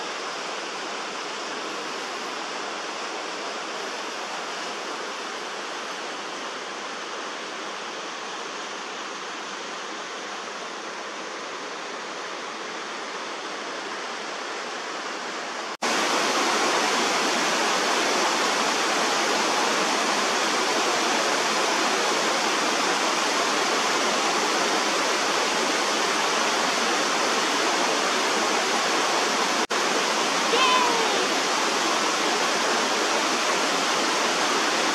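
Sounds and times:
waterfall rushing: 14.5s - 34.9s.

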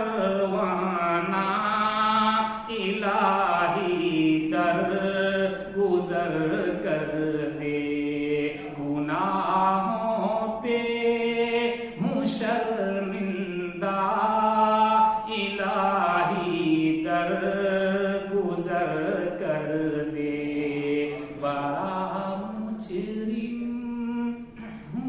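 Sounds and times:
man chanting unaccompanied: 0.0s - 25.0s
singer breathing: 2.4s - 2.7s.

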